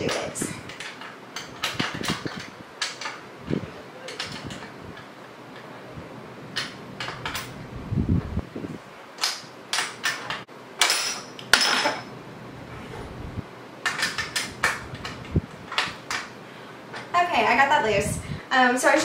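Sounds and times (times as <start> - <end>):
wrench clanking on metal nut: 0.0 - 3.3, 4.0 - 5.7, 6.5 - 7.6, 9.2 - 12.1, 13.8 - 16.3.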